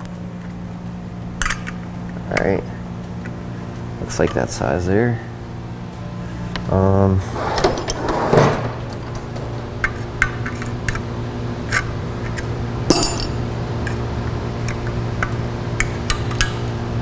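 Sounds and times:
metal tools clinking: 12.9s - 13.4s.

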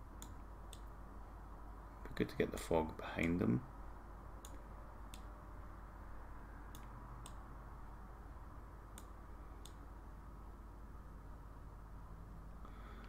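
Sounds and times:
low room hum: 0.0s - 13.0s
computer mouse clicking: 4.4s - 5.3s, 6.7s - 7.4s, 8.9s - 9.8s.

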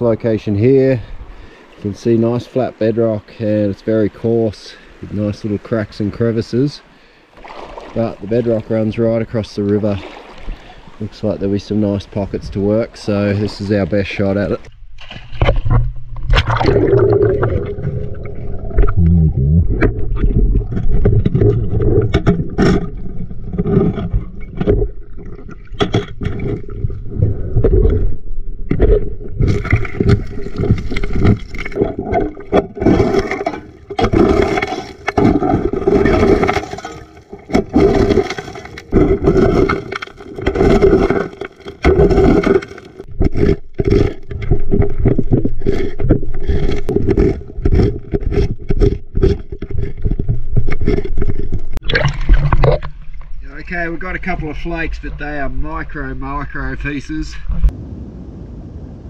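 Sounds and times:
stones clattering: 28.7s - 52.9s.

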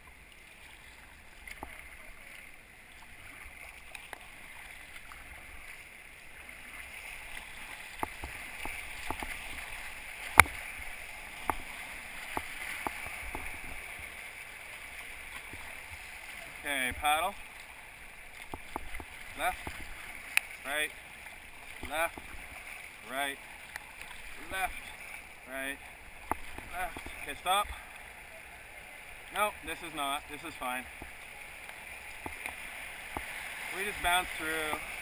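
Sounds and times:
river rapids rushing: 29.0s - 35.0s.

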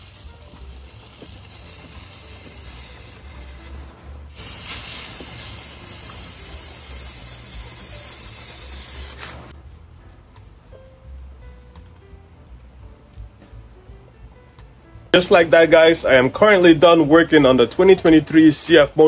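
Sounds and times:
spraying hiss: 0.0s - 9.5s.

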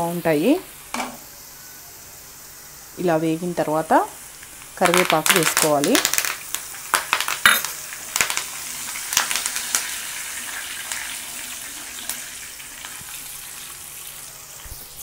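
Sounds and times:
leaves and garlic sizzling in oil: 0.0s - 15.0s
sharp crackles of oil: 4.3s - 15.0s.

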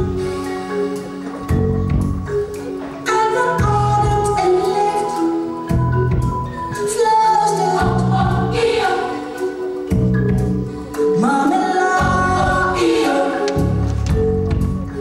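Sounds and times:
choir singing held notes: 7.2s - 9.9s, 10.8s - 14.0s.

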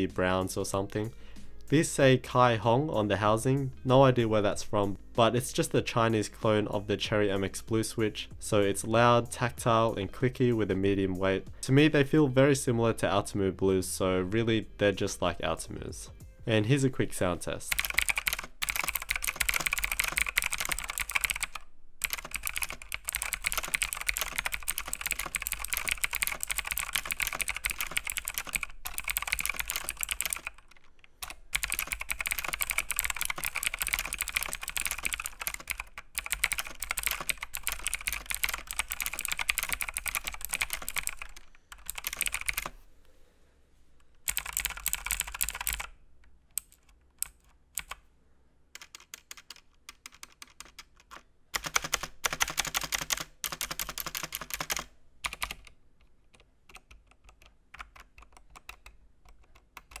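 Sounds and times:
clicky mechanical keyboard typing: 17.7s - 42.7s, 44.3s - 45.9s, 46.5s - 48.0s, 48.8s - 55.7s, 56.3s - 60.0s.

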